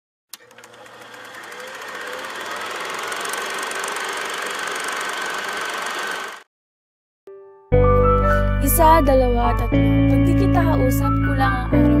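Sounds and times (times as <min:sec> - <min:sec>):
film projector clattering: 0:00.3 - 0:06.4.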